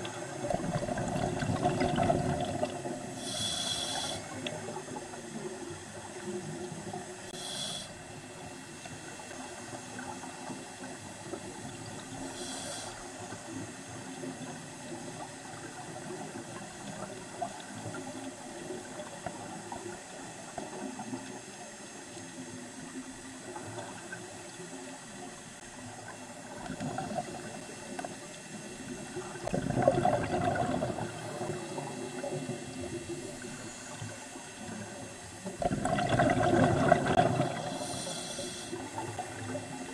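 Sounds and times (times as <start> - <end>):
underwater bubbling: 0.0 - 39.9
rush of exhaled bubbles: 0.4 - 3.0, 29.4 - 31.9, 35.6 - 37.8
regulator hiss: 3.1 - 6.0, 6.8 - 10.5, 12.1 - 14.2, 37.4 - 39.9.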